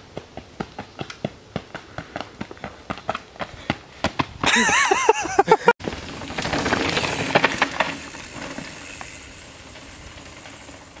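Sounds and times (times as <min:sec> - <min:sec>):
laughter: 0:04.4 - 0:05.8
bike rattling: 0:05.8 - 0:11.0
bike tyres crunching on dirt: 0:05.8 - 0:11.0.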